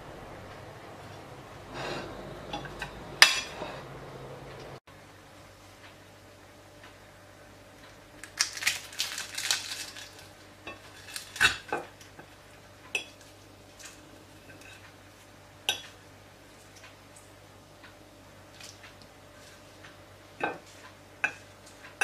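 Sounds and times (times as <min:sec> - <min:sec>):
crisp pastry crackling: 0:07.8 - 0:15.4.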